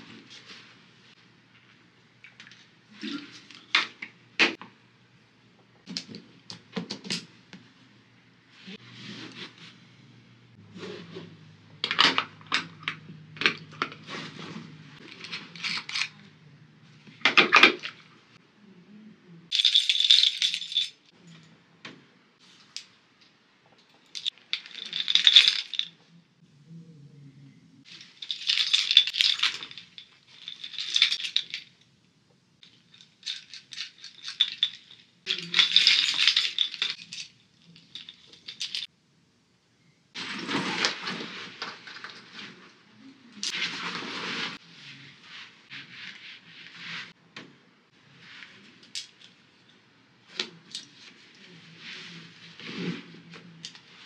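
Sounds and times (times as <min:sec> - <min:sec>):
keys jingling: 0:33.0 - 0:38.9.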